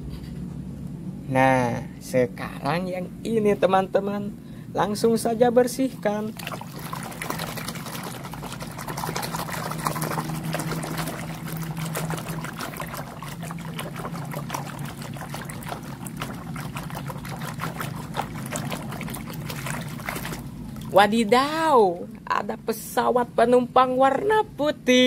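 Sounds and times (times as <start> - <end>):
water sloshing in plastic basin: 5.8 - 21.6
hand scrubbing toy underwater: 5.9 - 21.2.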